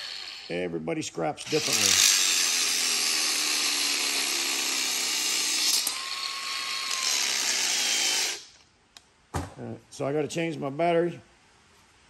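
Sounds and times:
grinder whining: 0.0 - 0.6, 1.4 - 8.6.

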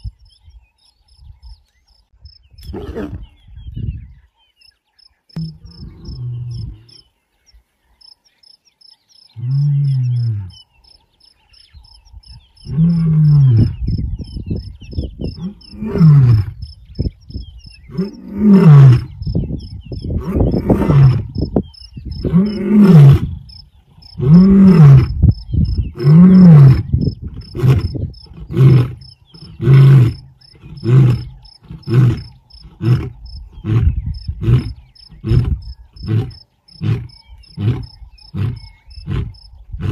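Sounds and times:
lion grunting: 5.4 - 7.0, 25.8 - 39.9
lion roaring: 22.2 - 23.5, 24.2 - 25.2, 25.9 - 39.9.

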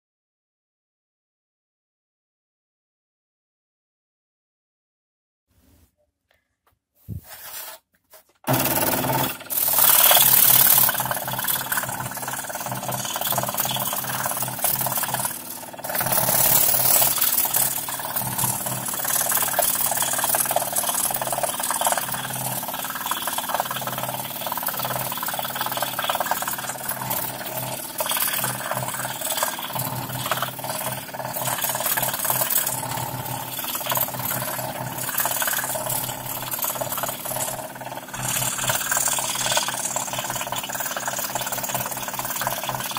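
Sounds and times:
scroll saw cutting plywood: 8.5 - 42.9.

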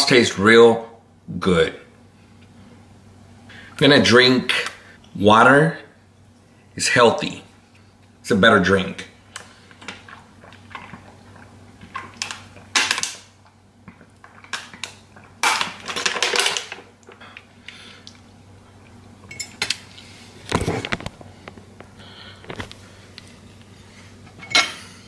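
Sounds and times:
person drinking: 9.2 - 12.8.

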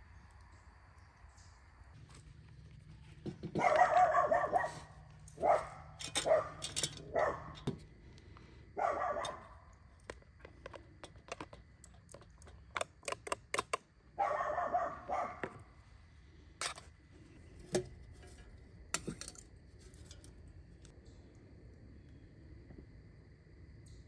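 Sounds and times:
dog barking: 3.5 - 7.6, 8.8 - 9.6, 14.2 - 15.5
spoon clinking on metal pots: 6.0 - 7.7, 17.7 - 20.3.

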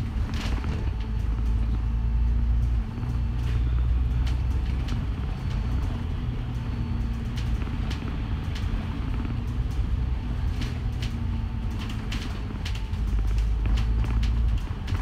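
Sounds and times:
rattles and clicks of bus fittings: 0.0 - 1.9, 2.5 - 15.0
bus engine and road rumble: 0.0 - 15.0.

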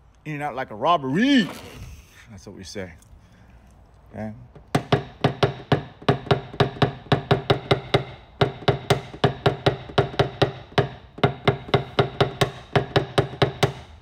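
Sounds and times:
tool tapping car body panel: 4.6 - 14.0.

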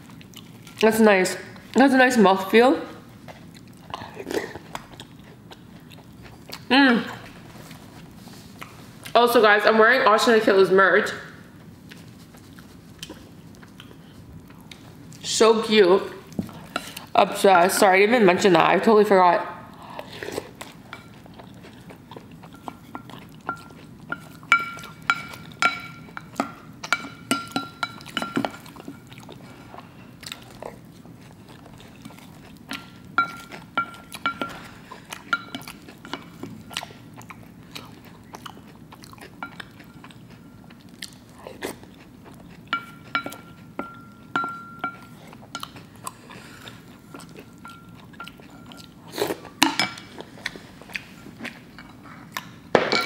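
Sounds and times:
crunchy cereal being chewed: 3.1 - 9.2, 11.5 - 15.2, 20.0 - 25.6, 28.0 - 43.8.

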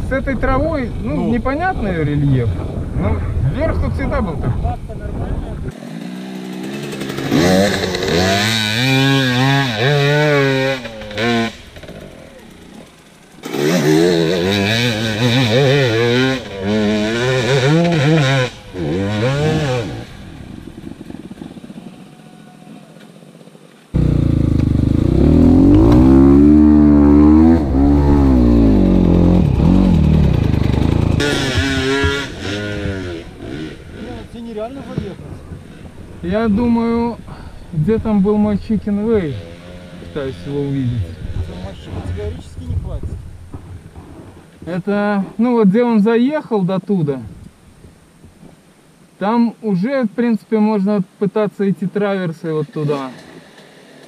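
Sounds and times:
off-road motorcycle engine revving: 5.5 - 22.3, 23.9 - 43.9.

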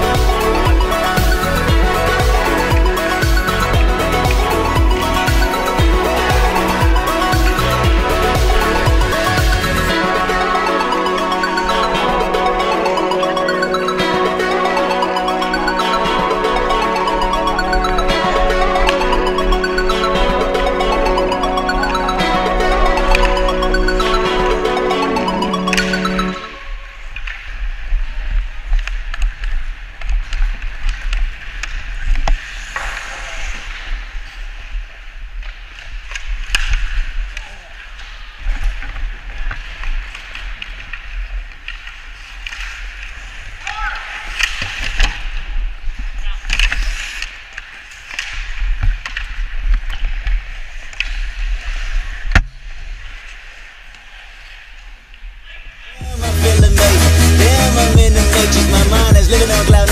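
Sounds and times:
hockey sticks clacking: 28.7 - 33.9, 38.0 - 45.5
skate blades scraping ice: 28.9 - 34.7, 37.9 - 52.3.

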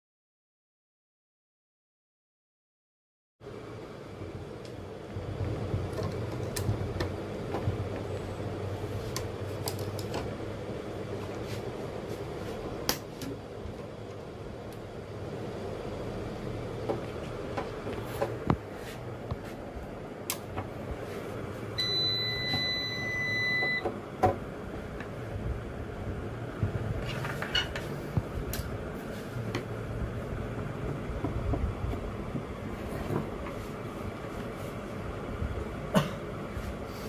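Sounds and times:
low steady hum: 3.4 - 37.0
high electronic beep: 21.8 - 23.8.

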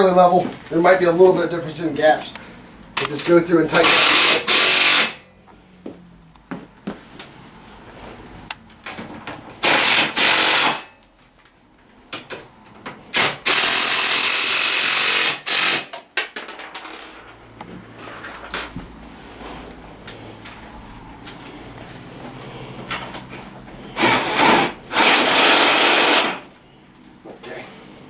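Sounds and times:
cordless power driver running: 24.0 - 26.4.

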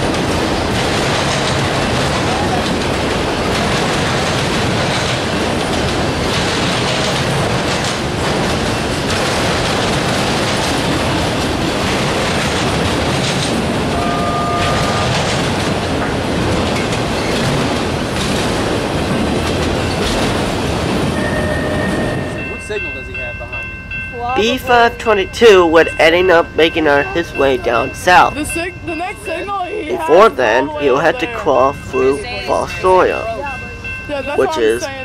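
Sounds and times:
train wheels on rails: 0.0 - 35.0.

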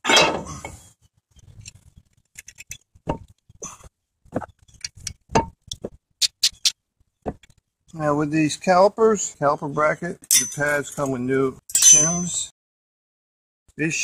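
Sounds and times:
metal clinks: 10.3 - 10.8.

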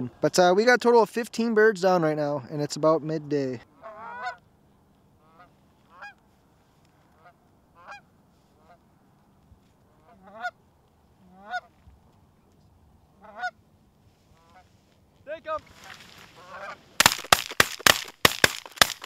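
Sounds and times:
geese honking: 3.8 - 4.4, 5.2 - 6.2, 7.1 - 8.8, 9.9 - 10.6, 11.3 - 11.7, 13.2 - 13.6, 16.3 - 16.8.

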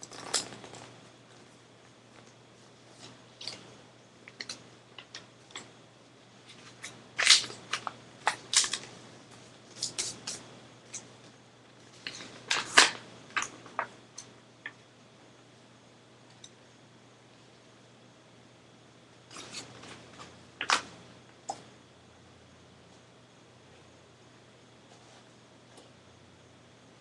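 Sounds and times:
paper crinkling while folded: 0.0 - 1.0.

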